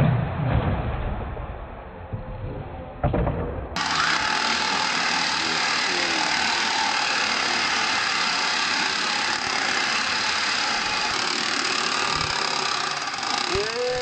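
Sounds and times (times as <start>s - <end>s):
toy truck motors and gears whirring: 3.8s - 14.0s.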